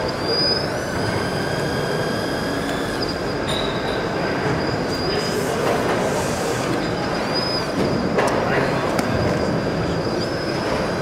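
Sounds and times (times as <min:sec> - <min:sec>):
high thin motor whine: 0:00.0 - 0:06.9, 0:09.4 - 0:11.0.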